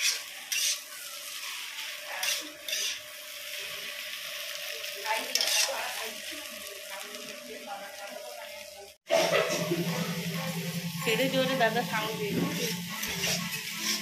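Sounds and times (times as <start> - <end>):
steel spatula scraping pan: 0.0 - 3.1, 5.3 - 5.9, 12.0 - 14.0
food sizzling in a pan: 0.0 - 14.0.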